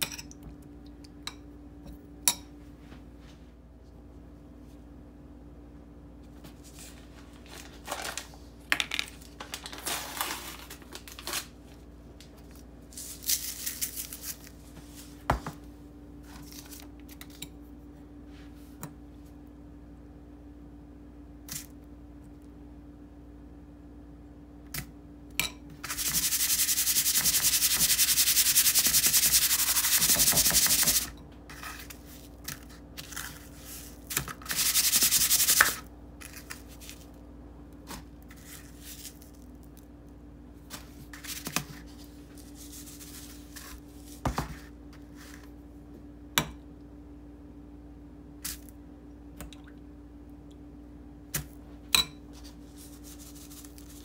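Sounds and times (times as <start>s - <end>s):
gritty rubbing of breadcrumbs by hand: 25.8s - 37.1s, 41.1s - 45.5s, 52.4s - 54.0s.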